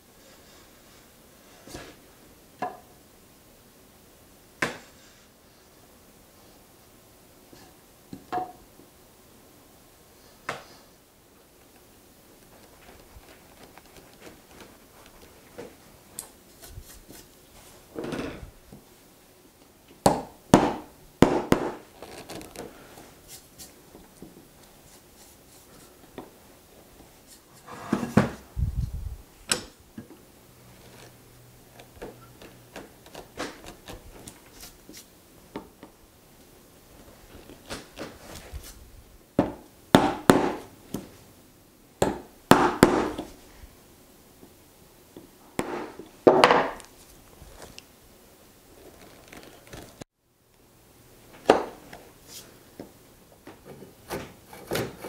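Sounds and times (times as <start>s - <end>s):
chisel scraping wood: 54.1s - 55.0s.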